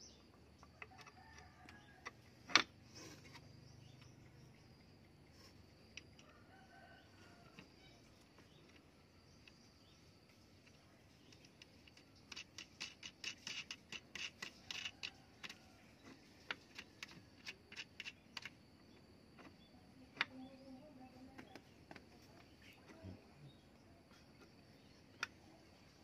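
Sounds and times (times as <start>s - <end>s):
wooden part clicking and tapping: 0.6s - 4.2s, 10.6s - 20.6s, 21.3s - 23.0s, 24.0s - 25.4s.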